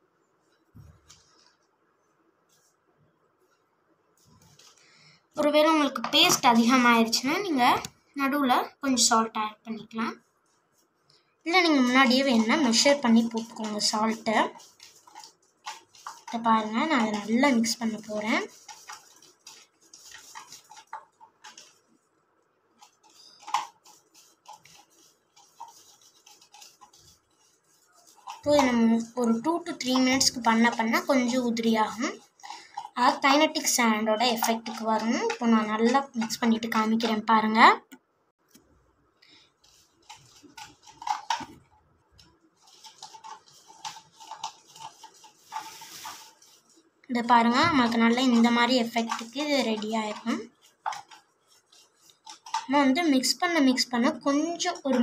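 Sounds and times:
stick scraping gritty mix in cup: 0:11.5 - 0:22.1, 0:22.8 - 0:37.5, 0:39.6 - 0:55.0.

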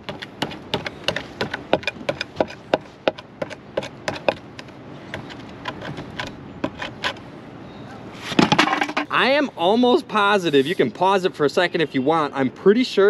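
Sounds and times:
axe tapping on metal: 0:00.1 - 0:04.4.

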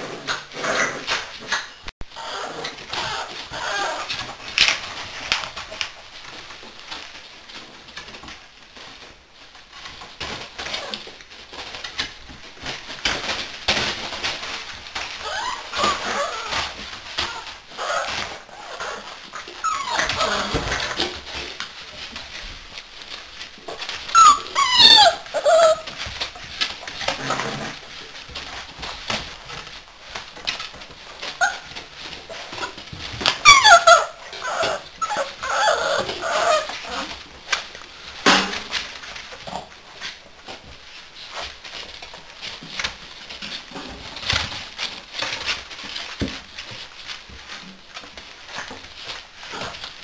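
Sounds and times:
scuffle of paws: 0:00.0 - 0:50.0
puppies whining and yelping: 0:00.6 - 0:05.5, 0:14.9 - 0:21.4, 0:23.8 - 0:27.5, 0:30.2 - 0:37.3.

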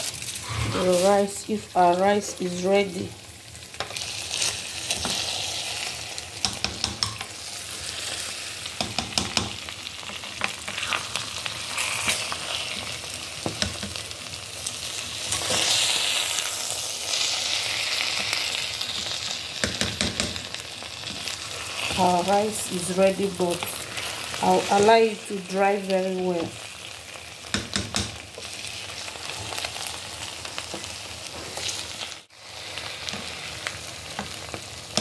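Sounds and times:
rice sizzling in a metal pot: 0:00.0 - 0:35.0
spoon knocking against pot: 0:06.4 - 0:07.3, 0:08.8 - 0:09.6, 0:19.6 - 0:20.4, 0:27.5 - 0:28.2.

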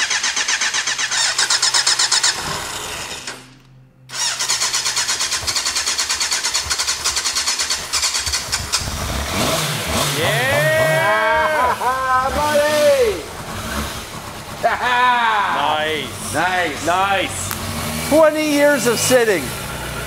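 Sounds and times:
motorcycle engine cranking: 0:00.0 - 0:11.0.

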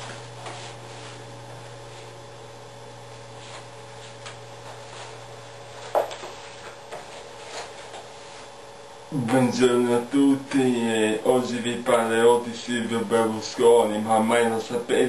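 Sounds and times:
low electrical hum: 0:00.0 - 0:15.0
person shifting in a chair: 0:05.8 - 0:08.5.

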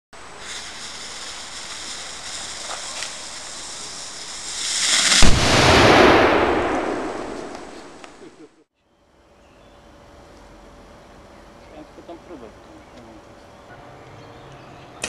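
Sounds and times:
priming fizzing and hissing: 0:00.2 - 0:06.1
gun firing with loud boom: 0:05.1 - 0:08.1.

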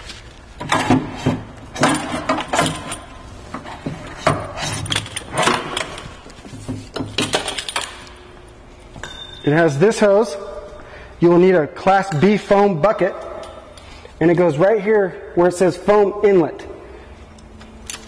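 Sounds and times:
equipment clinking and knocking: 0:00.6 - 0:08.2, 0:09.0 - 0:09.5.

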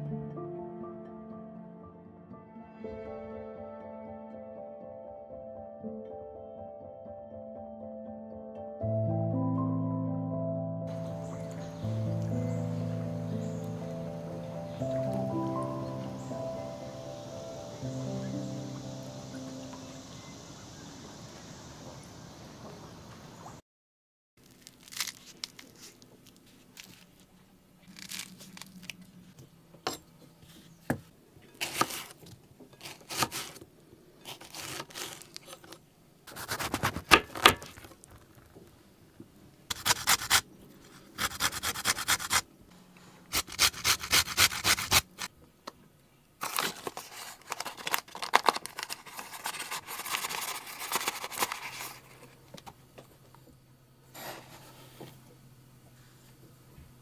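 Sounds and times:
utensils scraping and rubbing: 0:32.8 - 0:33.6, 0:34.2 - 0:37.1, 0:39.7 - 0:42.4, 0:43.3 - 0:45.3.

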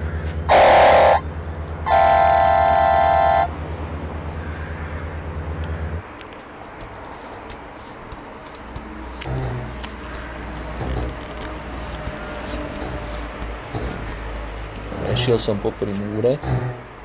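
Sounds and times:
pulsing engine rumble: 0:00.0 - 0:17.0
vehicle horn blasts: 0:00.5 - 0:01.2, 0:01.8 - 0:03.6.

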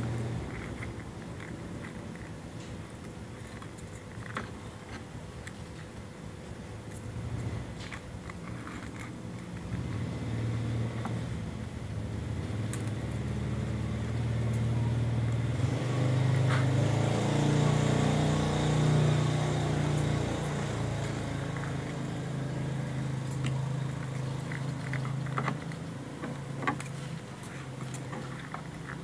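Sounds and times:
motor engine running: 0:09.6 - 0:29.0.

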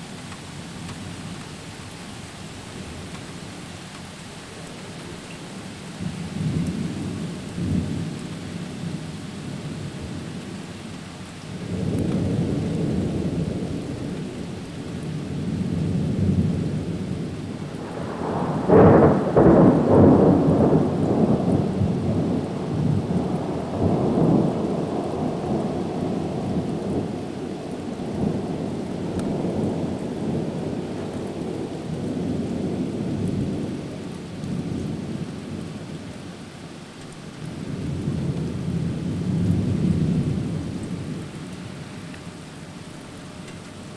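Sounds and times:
steady rain: 0:00.0 - 0:43.9
thunder rumbling: 0:11.5 - 0:36.0, 0:37.5 - 0:41.8.

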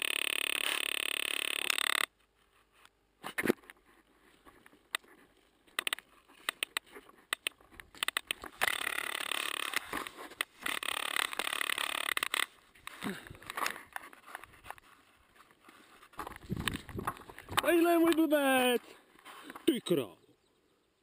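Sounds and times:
knocks and scrapes on camera: 0:12.8 - 0:17.7.

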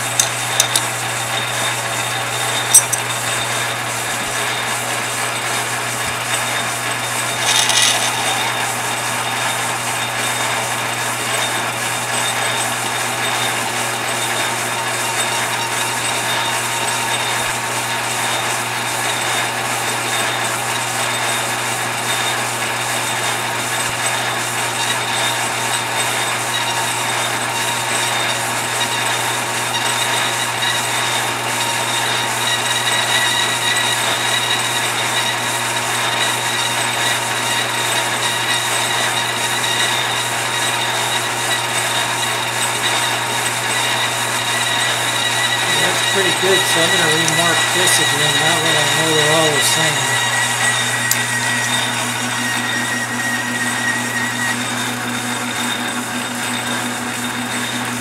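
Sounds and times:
cutting tool on metal rod: 0:00.0 - 0:00.9, 0:02.7 - 0:03.2, 0:07.3 - 0:08.7, 0:45.4 - 0:51.8
metal lathe motor hum: 0:00.0 - 0:18.6, 0:38.4 - 0:58.0.

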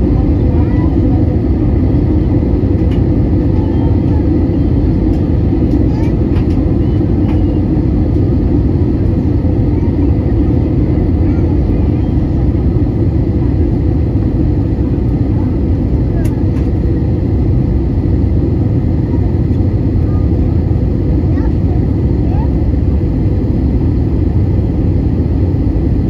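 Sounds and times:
jet engine and airflow roar: 0:00.0 - 0:26.0.

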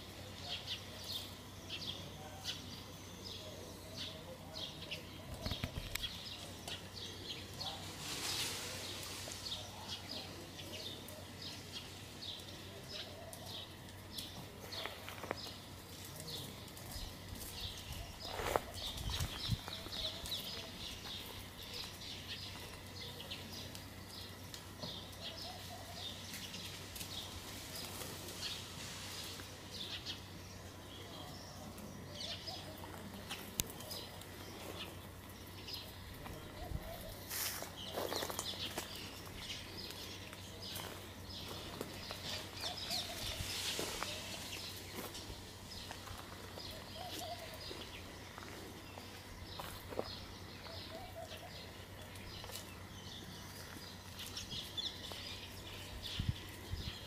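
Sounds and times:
small birds chirping: 0:00.0 - 0:57.0
wavering bird calls: 0:40.8 - 0:45.1, 0:45.8 - 0:52.6.

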